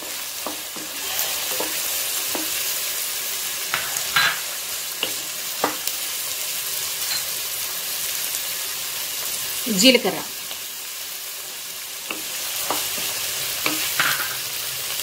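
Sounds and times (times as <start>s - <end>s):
spatula scraping a pan: 0.0s - 2.8s, 3.6s - 5.8s
onions sizzling in oil: 0.0s - 15.0s.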